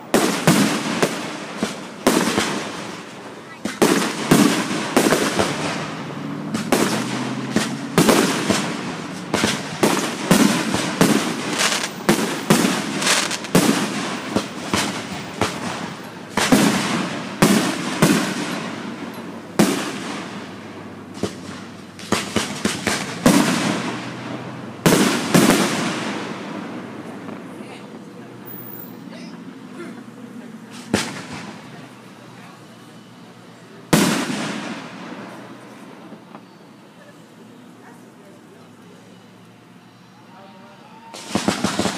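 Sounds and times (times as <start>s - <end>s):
firework shells bursting: 0.1s - 20.5s, 21.1s - 24.2s, 41.2s - 41.9s.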